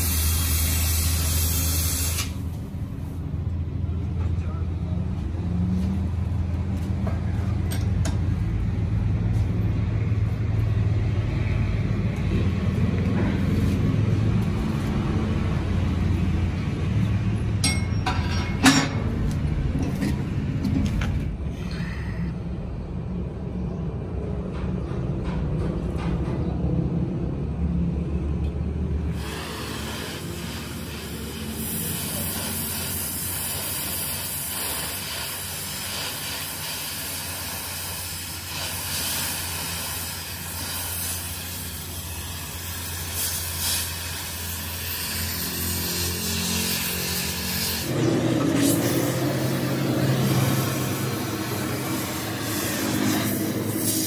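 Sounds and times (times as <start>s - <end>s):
torch hissing: 0.0s - 2.8s, 29.1s - 54.0s.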